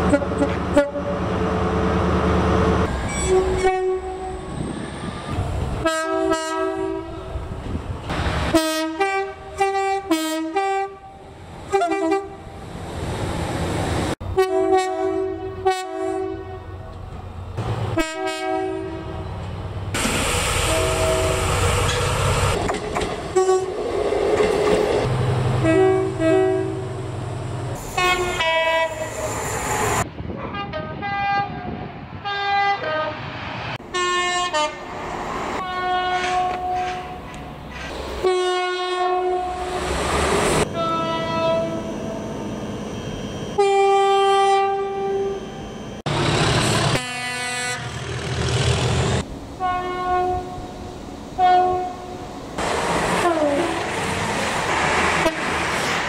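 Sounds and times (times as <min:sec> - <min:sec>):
two-tone train horn blasts: 0:00.0 - 0:01.3, 0:03.1 - 0:04.6, 0:05.8 - 0:07.3, 0:08.5 - 0:12.6, 0:14.3 - 0:16.9, 0:18.0 - 0:19.3, 0:20.6 - 0:21.6, 0:23.3 - 0:23.8, 0:25.6 - 0:27.0, 0:27.9 - 0:29.1, 0:30.5 - 0:33.3, 0:33.9 - 0:34.8, 0:35.6 - 0:37.2, 0:38.2 - 0:39.7, 0:40.6 - 0:42.2, 0:43.4 - 0:45.8, 0:46.8 - 0:48.0, 0:49.6 - 0:50.7, 0:51.4 - 0:52.2, 0:53.2 - 0:53.8, 0:55.2 - 0:55.5
passing trains rushing: 0:00.0 - 0:56.0.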